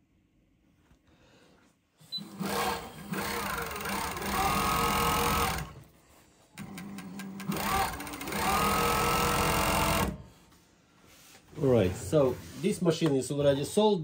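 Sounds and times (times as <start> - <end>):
sewing machine stitching: 2.1 - 5.9, 6.6 - 10.3
sewing machine clicks: 2.2 - 5.8, 6.6 - 10.2.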